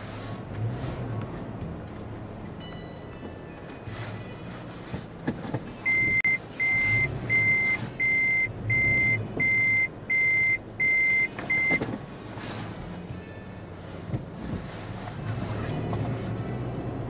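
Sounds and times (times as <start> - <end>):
high-pitched reverse beeps: 5.8 - 11.8.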